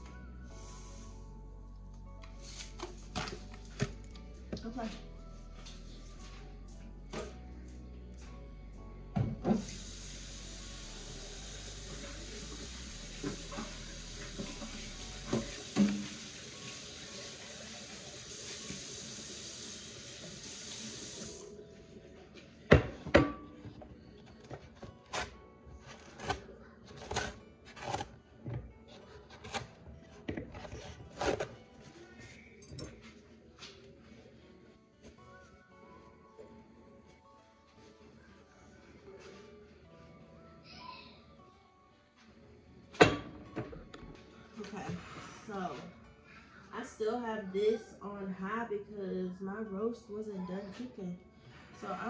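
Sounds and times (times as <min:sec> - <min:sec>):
tap water running: 0:09.2 - 0:21.5.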